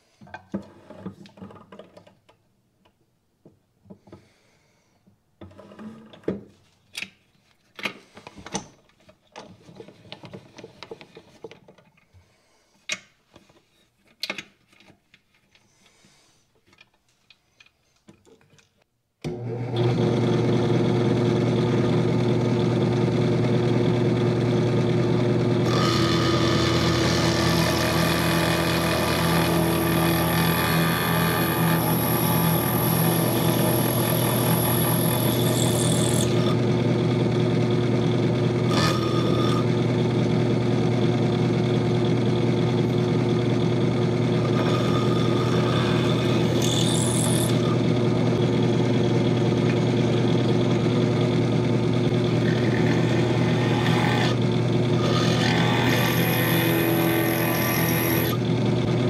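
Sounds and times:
drill press humming: 0:19.3 - 0:59.0.

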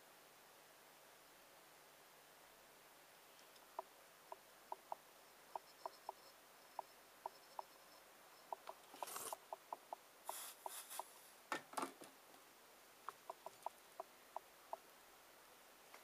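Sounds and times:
soft hissing: 0:02.3 - 0:11.5.

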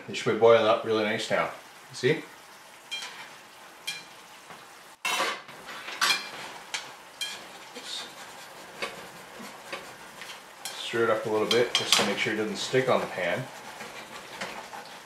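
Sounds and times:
oil sizzling in a frying pan: 0:00.1 - 0:15.0.

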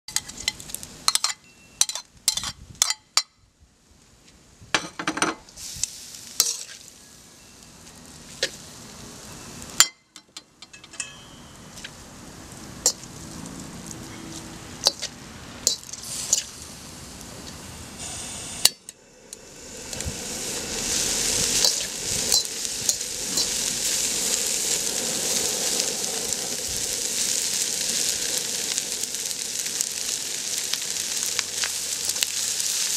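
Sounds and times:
utensil scraping a wok: 0:00.1 - 0:02.6, 0:05.8 - 0:06.9, 0:12.7 - 0:16.6, 0:17.4 - 0:32.9
food sizzling in a wok: 0:00.1 - 0:03.0, 0:05.5 - 0:10.0, 0:10.7 - 0:32.9.

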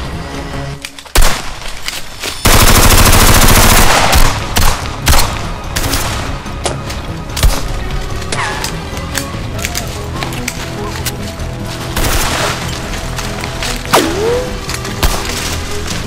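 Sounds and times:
automatic gunfire: 0:02.5 - 0:05.3.

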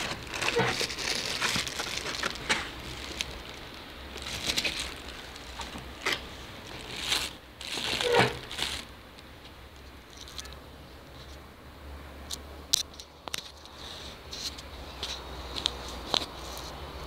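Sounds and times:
plastic wrapping crinkling: 0:00.0 - 0:10.6.

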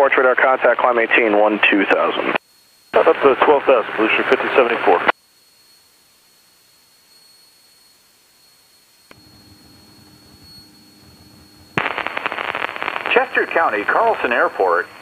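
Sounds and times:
radio voice: 0:00.0 - 0:02.4, 0:03.0 - 0:05.1, 0:13.0 - 0:15.0
radio intercom hiss: 0:00.0 - 0:05.2, 0:11.8 - 0:15.0
thin high whine: 0:00.0 - 0:15.0
low hum: 0:02.6 - 0:15.0.

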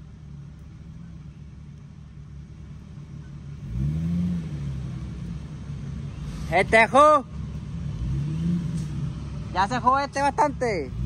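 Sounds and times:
off-road vehicle engine revving: 0:02.6 - 0:11.0.

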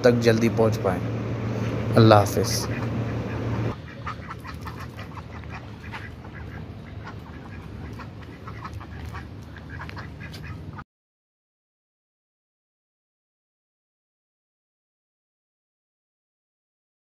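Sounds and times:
steady low background: 0:00.0 - 0:03.8
ducks quacking: 0:00.6 - 0:10.8.

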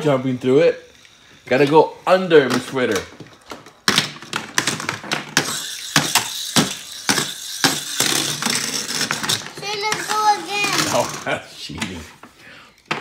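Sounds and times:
toy cars clacking on plastic track: 0:02.4 - 0:11.4.

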